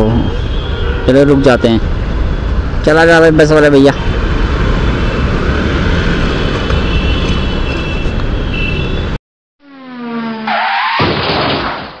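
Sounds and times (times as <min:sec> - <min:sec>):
motorcycle road and wind noise: 0:00.0 - 0:09.2.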